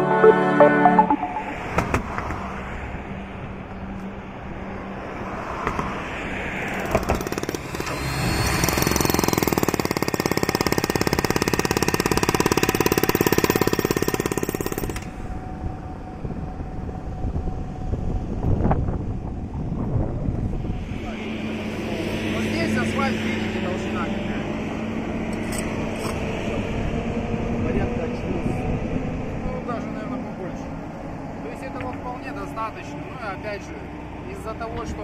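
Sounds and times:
road traffic passing: 0:00.0 - 0:35.0
demolition hammer breaking asphalt: 0:06.7 - 0:15.1.

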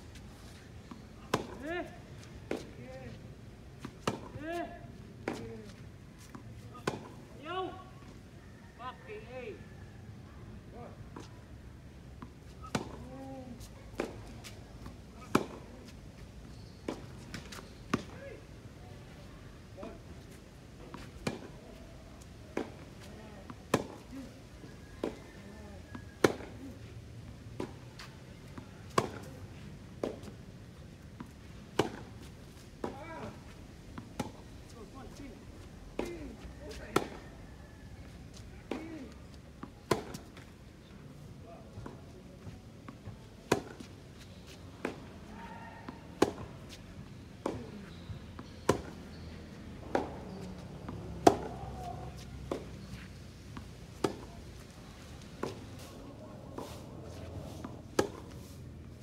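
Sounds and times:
tennis balls struck by rackets: 0:00.8 - 0:02.9, 0:03.8 - 0:07.4, 0:12.1 - 0:16.0, 0:19.8 - 0:26.7, 0:27.4 - 0:37.2, 0:38.3 - 0:40.6, 0:42.8 - 0:58.4
rackets striking tennis ball: 0:00.9 - 0:01.7, 0:31.7 - 0:34.6, 0:38.6 - 0:40.4, 0:48.4 - 0:55.8, 0:57.6 - 0:58.4.

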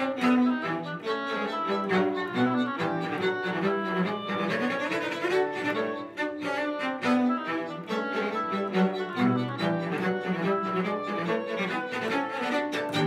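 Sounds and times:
bowed strings playing fast: 0:00.0 - 0:13.0.

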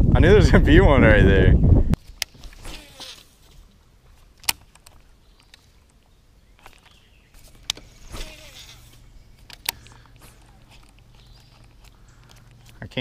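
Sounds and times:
sharp clicks: 0:08.9 - 0:13.0.

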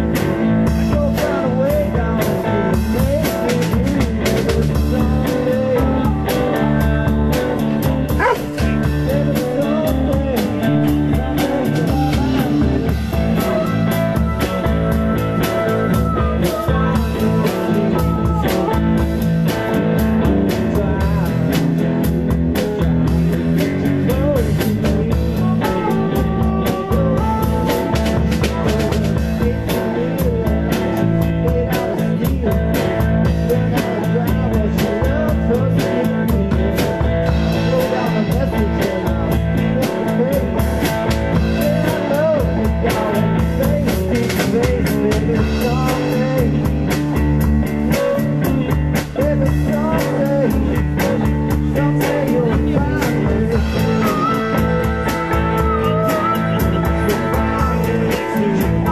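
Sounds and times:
drum kit beat: 0:00.0 - 0:58.9
electric guitar: 0:00.0 - 0:58.9
harmonica lines: 0:13.4 - 0:17.1.

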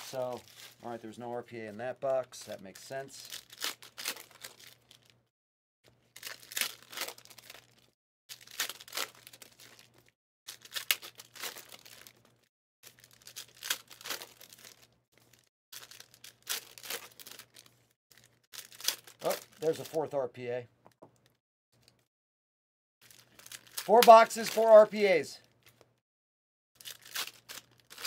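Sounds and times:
foil wrappers tearing and crinkling: 0:03.2 - 0:05.1, 0:06.1 - 0:20.1, 0:23.0 - 0:25.8, 0:26.8 - 0:28.0.

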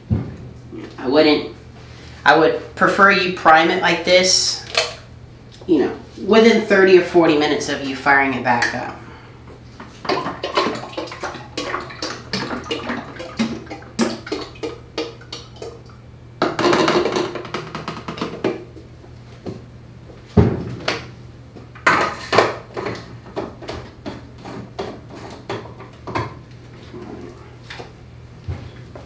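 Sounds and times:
sprayer thumping on workbench: 0:00.1 - 0:00.5, 0:20.4 - 0:21.1.

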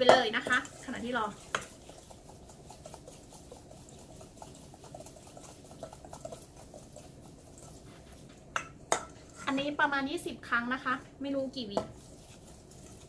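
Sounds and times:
wire whisk beating in a bowl: 0:00.0 - 0:09.2, 0:11.8 - 0:13.0.

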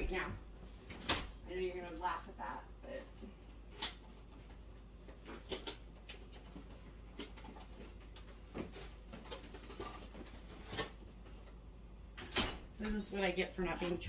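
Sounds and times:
kitchen items clicking and rustling: 0:03.5 - 0:11.6.

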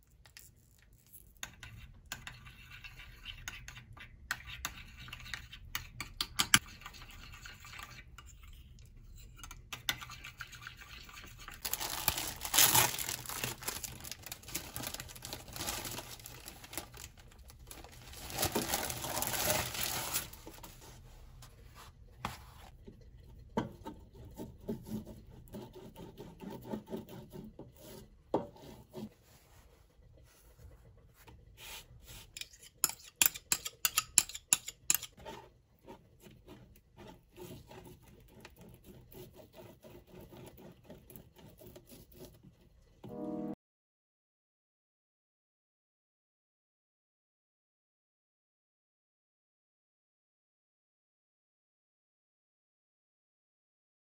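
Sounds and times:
rustling and rubbing by hand: 0:11.6 - 0:23.0, 0:28.7 - 0:32.4.

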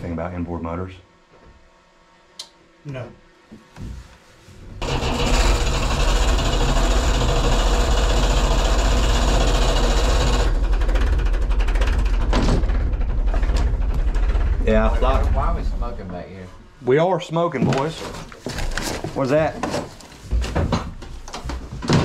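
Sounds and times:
boat engine pulsing: 0:04.8 - 0:15.7.

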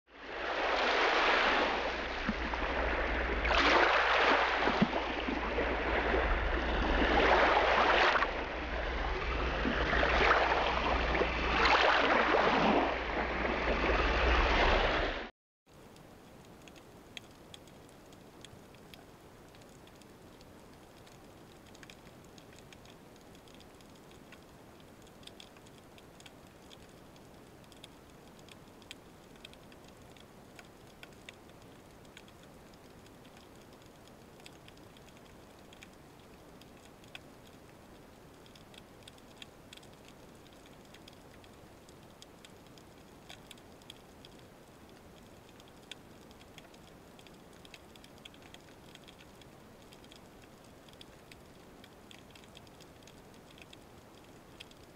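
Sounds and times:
low underwater hiss: 0:00.1 - 0:54.9
sharp ticks and crackles: 0:15.7 - 0:54.9.

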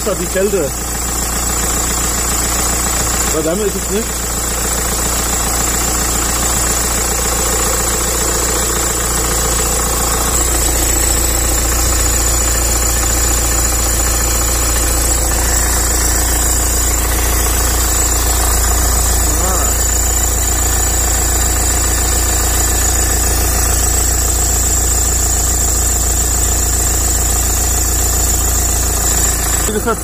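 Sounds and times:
car engine idling: 0:00.0 - 0:30.0
high-pitched belt whine: 0:06.1 - 0:30.0.

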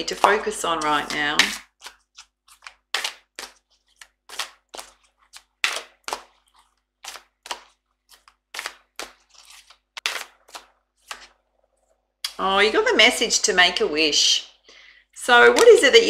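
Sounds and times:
playing cards being shuffled: 0:00.2 - 0:11.4.

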